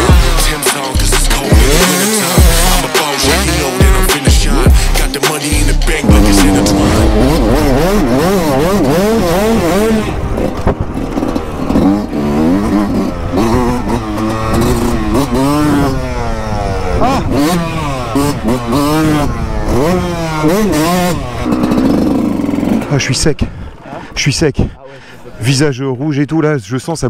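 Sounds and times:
motocross bike engine revving: 1.4 - 5.0, 5.6 - 23.0.

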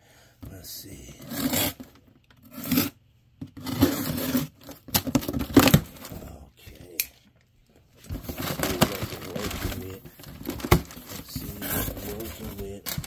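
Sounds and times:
cardboard tearing and scraping: 8.1 - 13.0.

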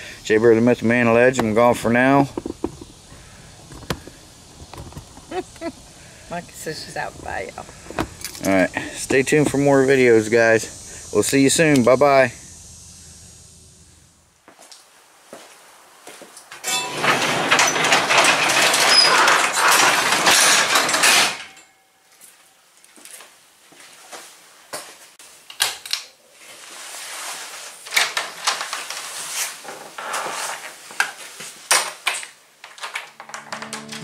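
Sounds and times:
light clattering: 1.4 - 5.8, 7.1 - 9.6
garage door rumbling and rattling: 16.7 - 21.5.

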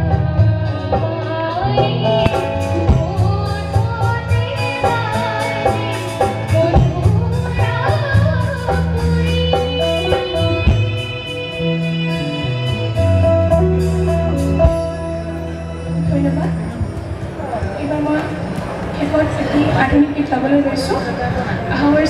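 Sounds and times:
woman singing through pa: 0.0 - 13.6
instrumental music with fast beat: 0.0 - 17.2.

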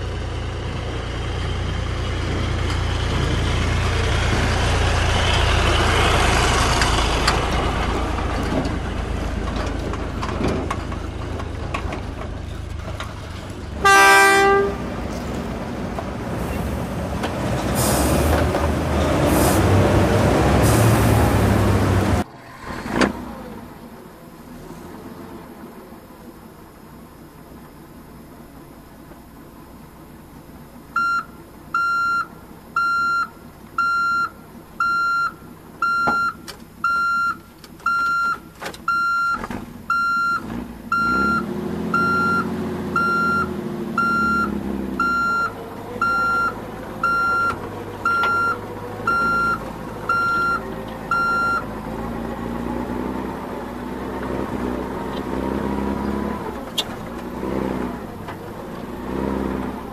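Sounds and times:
truck engine: 0.0 - 59.9
truck reversing beeper: 30.9 - 52.0.

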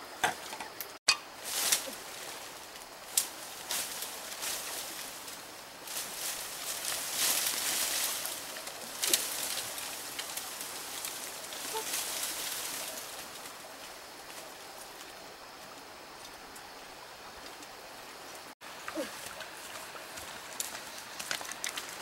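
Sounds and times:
dry leaves and twigs rustling: 0.4 - 22.0
twig cracking: 6.2 - 13.5.

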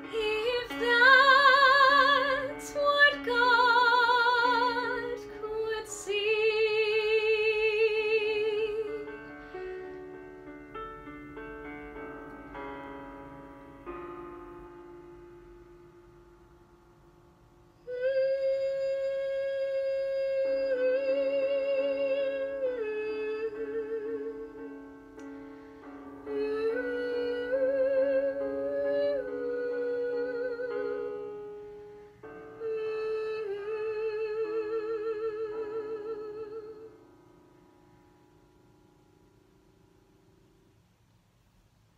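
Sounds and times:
woman singing with vibrato: 0.0 - 9.4, 17.8 - 24.8, 26.2 - 31.4, 32.5 - 37.0
piano accompaniment: 0.0 - 41.1.

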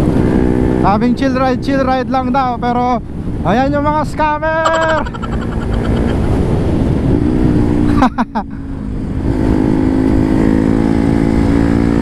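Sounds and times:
wind rush: 3.0 - 7.9
motorcycle engine accelerating: 4.6 - 7.9.

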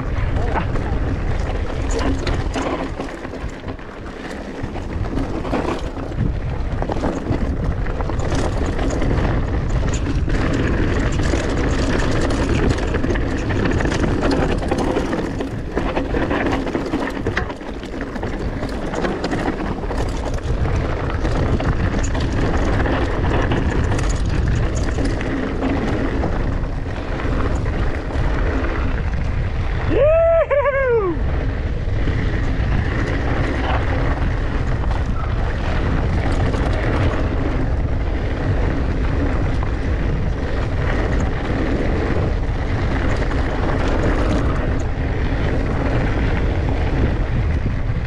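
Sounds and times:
tyres crunching over rocks: 0.0 - 29.5
bike rattling and clattering: 0.0 - 48.0
wind buffeting microphone: 0.0 - 48.0.

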